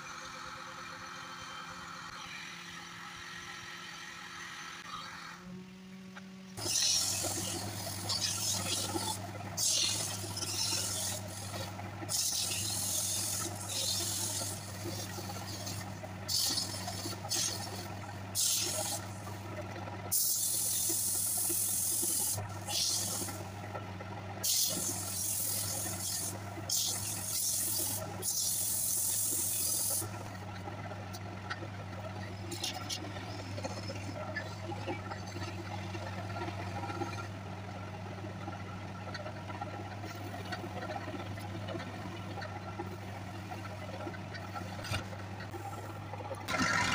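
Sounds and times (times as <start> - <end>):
lathe motor hum: 0.0 - 46.9
tool scraping spinning wood: 6.6 - 19.5.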